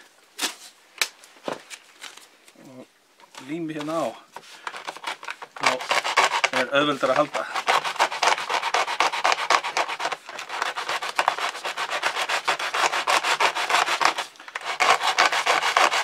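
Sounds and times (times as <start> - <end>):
plastic scraping on sandpaper: 3.3 - 16.0.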